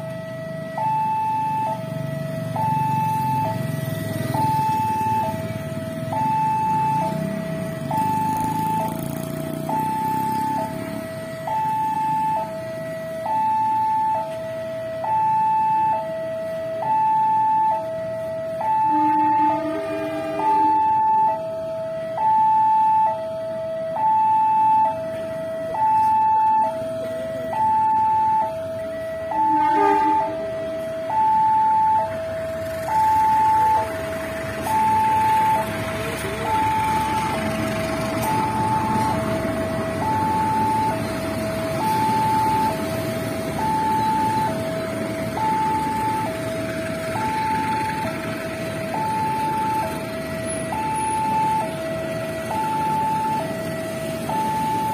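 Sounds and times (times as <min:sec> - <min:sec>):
level crossing two-tone alarm: 0:00.0 - 0:54.9
passenger train passing: 0:18.5 - 0:20.9, 0:29.4 - 0:31.1, 0:33.8 - 0:41.9.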